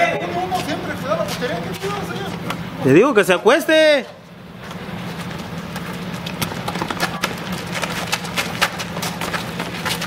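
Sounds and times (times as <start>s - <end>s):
steady low hum: 0.0s - 10.0s
footsteps running on asphalt: 5.0s - 10.0s.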